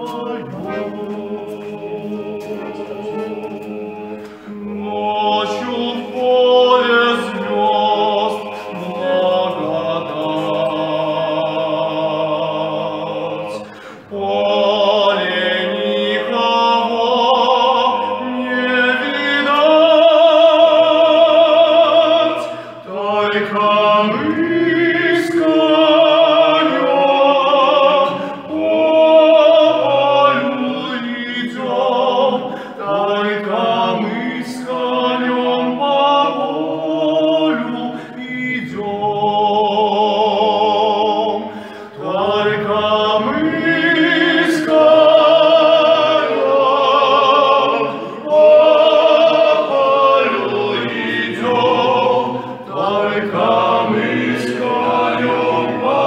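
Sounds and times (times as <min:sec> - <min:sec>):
two men singing in harmony: 0:00.0 - 0:56.0.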